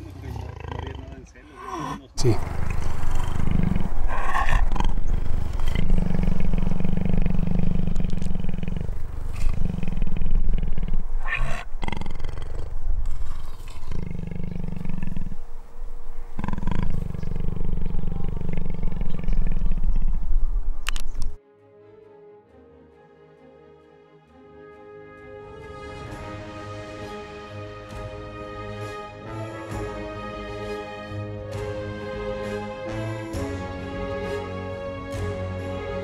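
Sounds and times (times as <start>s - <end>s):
jaguar calling: 0.0s - 15.5s, 16.1s - 21.4s.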